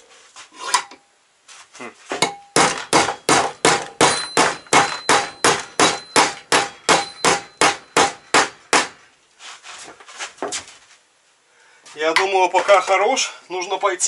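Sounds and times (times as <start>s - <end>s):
hammer striking metal: 2.2s - 9.0s.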